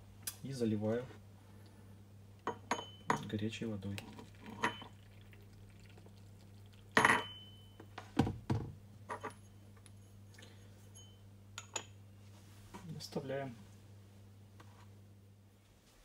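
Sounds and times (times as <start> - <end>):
hot water pouring: 4.0 - 7.0
porcelain lid clink: 7.0 - 7.6.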